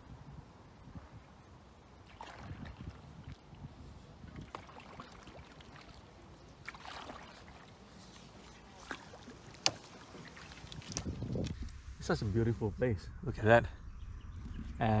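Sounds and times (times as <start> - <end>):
paddle splashing water: 1.9 - 11.7
low rumble: 11.2 - 15.0.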